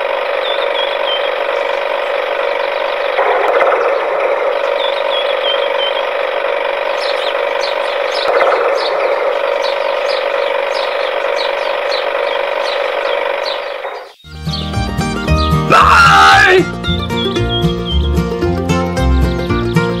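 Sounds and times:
small electric gear motor running: 5.7 - 13.8.

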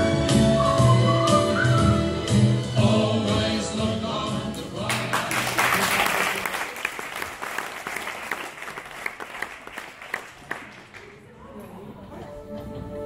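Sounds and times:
music: 0.0 - 5.6, 11.8 - 13.0
audience applause: 4.9 - 11.4.

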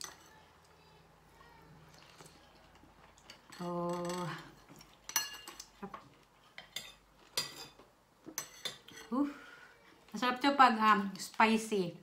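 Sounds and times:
spoon clinking against bowl: 5.1 - 5.6.

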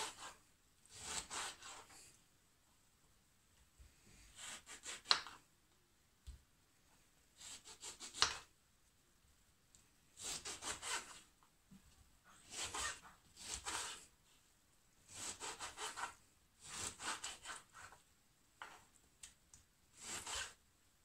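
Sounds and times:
knife slicing through oranges: 0.0 - 2.1, 4.1 - 5.4, 7.4 - 8.5, 10.2 - 11.3, 12.3 - 14.1, 15.1 - 18.0, 19.9 - 20.6.

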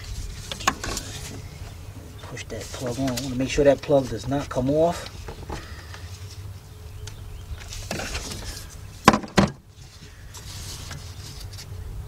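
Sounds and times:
low steady hum: 0.0 - 12.0
brief rustle: 2.6 - 6.4, 9.8 - 11.8.

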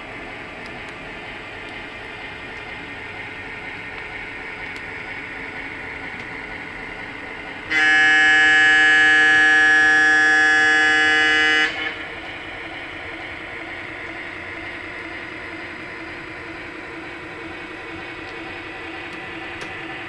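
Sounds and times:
model train horn chord: 7.7 - 12.1.

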